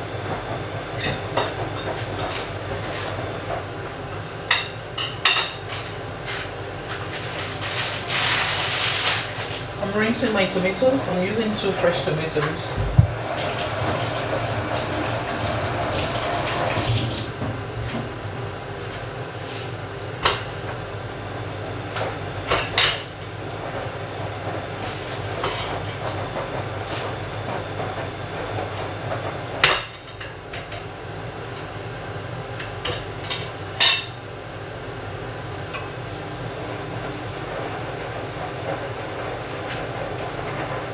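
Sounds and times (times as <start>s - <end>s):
steady low hum: 9.4s - 13.4s
kitchen tap running: 12.8s - 17.6s.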